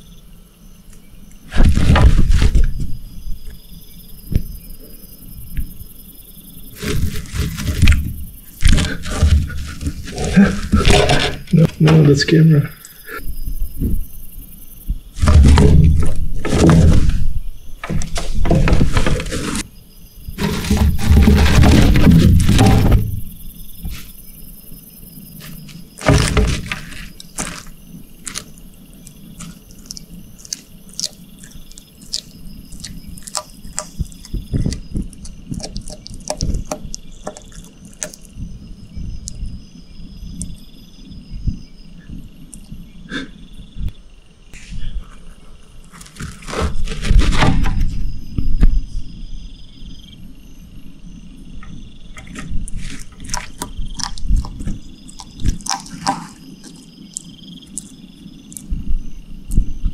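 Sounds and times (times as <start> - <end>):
insects chirping: 0.0 - 59.9
scuffling noise: 1.5 - 3.0, 6.7 - 12.3, 15.2 - 19.7, 20.4 - 24.2, 25.4 - 28.6, 44.6 - 48.0
clicks and rustles: 6.8 - 12.3, 15.2 - 19.7, 20.4 - 24.2, 25.4 - 38.4, 45.2 - 47.9, 51.6 - 58.8.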